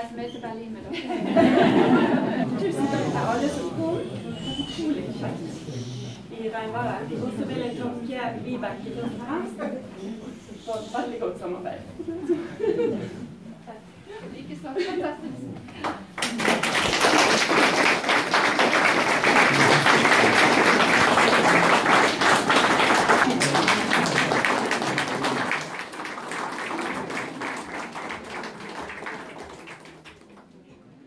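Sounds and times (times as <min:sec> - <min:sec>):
audience applauding: 0:15.9 - 0:30.6.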